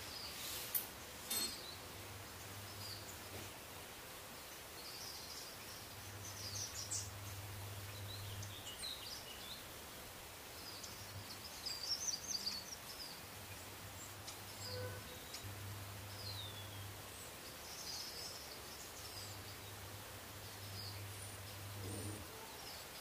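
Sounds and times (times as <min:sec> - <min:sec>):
small birds chirping: 0:00.0 - 0:23.0
steady low hum: 0:05.6 - 0:11.5, 0:13.2 - 0:22.6.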